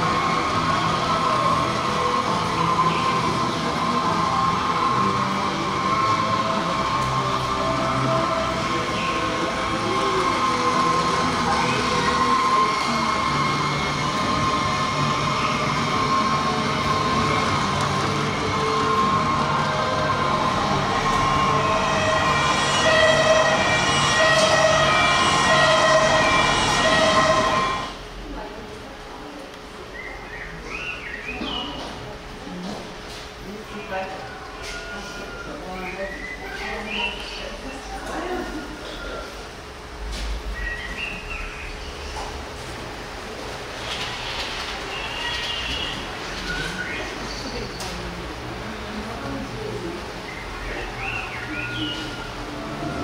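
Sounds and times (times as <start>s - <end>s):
two-tone emergency siren: 8.6s - 28.0s.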